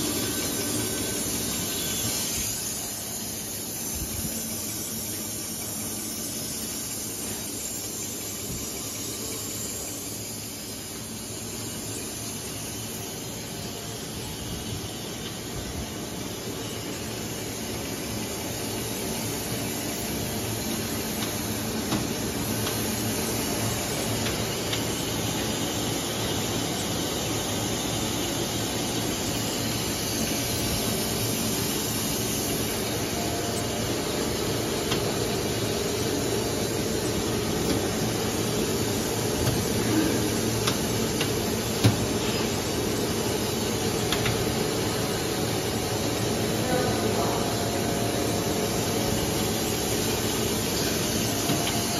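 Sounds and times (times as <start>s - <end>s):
extrusion machine drone and hiss: 0.0s - 51.9s.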